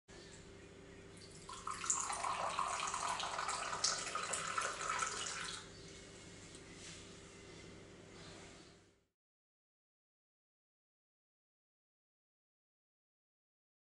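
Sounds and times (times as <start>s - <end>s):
tea pouring into glass cup: 1.3s - 5.7s.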